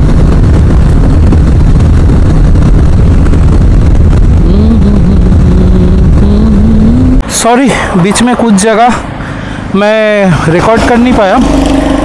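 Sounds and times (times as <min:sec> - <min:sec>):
motorcycle engine running: 0:00.0 - 0:07.2
wind rush on microphone: 0:00.0 - 0:12.0.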